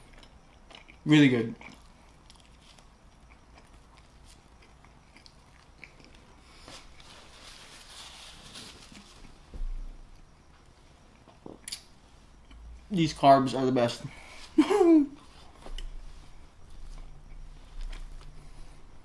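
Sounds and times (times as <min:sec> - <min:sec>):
person chewing: 0:00.0 - 0:07.4, 0:15.2 - 0:18.8.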